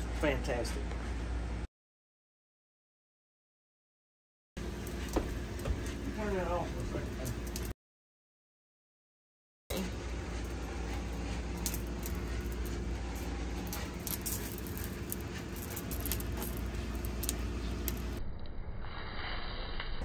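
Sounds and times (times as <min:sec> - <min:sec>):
steady low hum: 0:00.0 - 0:01.7, 0:04.6 - 0:07.7, 0:09.7 - 0:20.0.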